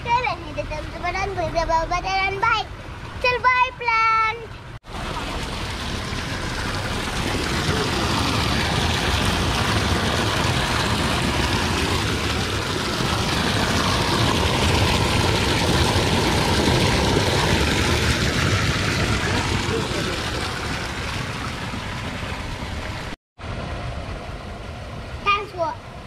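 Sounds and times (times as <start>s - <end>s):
water gushing into concrete basin: 4.8s - 23.6s.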